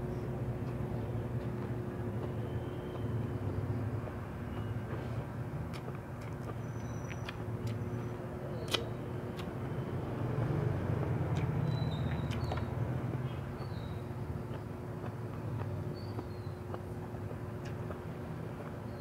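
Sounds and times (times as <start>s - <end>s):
faint hum: 0.0s - 19.0s
eating and mouth sounds: 0.6s - 3.2s, 4.5s - 9.6s, 10.9s - 19.0s
sharp clicks and smacks: 4.5s - 7.8s, 8.6s - 9.6s, 14.5s - 18.8s.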